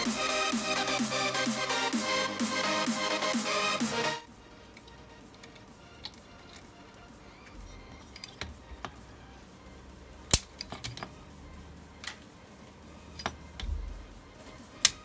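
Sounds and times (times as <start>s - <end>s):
tools clicking and tapping: 7.4s - 9.0s, 10.3s - 11.2s, 13.1s - 13.8s.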